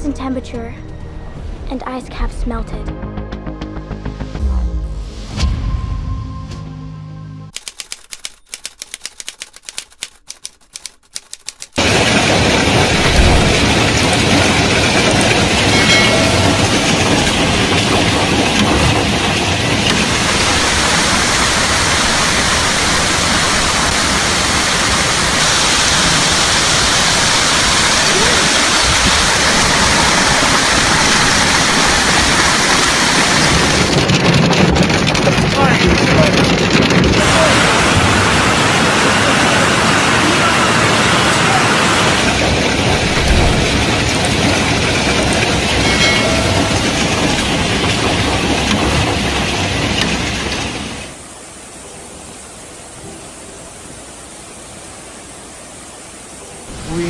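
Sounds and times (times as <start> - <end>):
scattered sharp clicks: 7.5 - 11.8
hailstones pelting the ground: 11.8 - 51.2.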